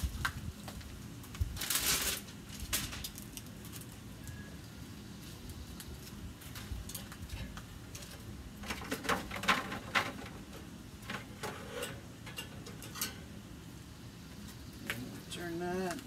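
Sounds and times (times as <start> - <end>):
metal grill grates clinking: 6.5 - 13.4.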